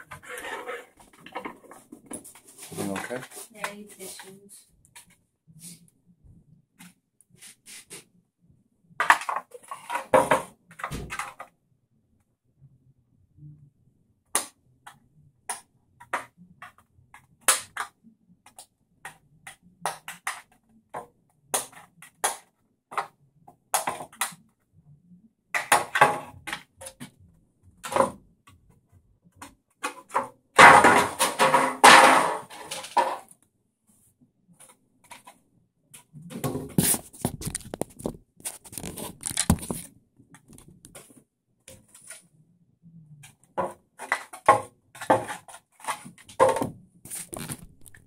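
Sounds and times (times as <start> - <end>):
plastic crackling: 37.0 - 41.0, 47.1 - 48.0.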